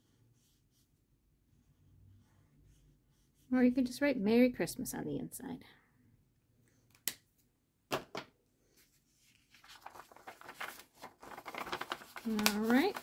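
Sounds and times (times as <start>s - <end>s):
paper rustling and crackling: 8.8s - 13.0s.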